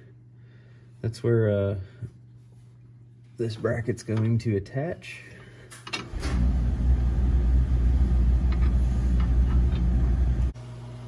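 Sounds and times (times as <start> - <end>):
quiet steady hum: 0.0 - 10.9
low rumble: 6.2 - 10.5.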